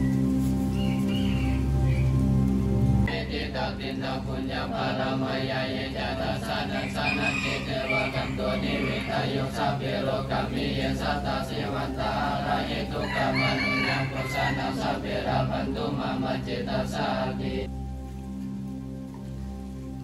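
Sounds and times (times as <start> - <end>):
street sounds: 0.0 - 20.0
rooster crowing: 6.7 - 9.6, 13.0 - 15.0.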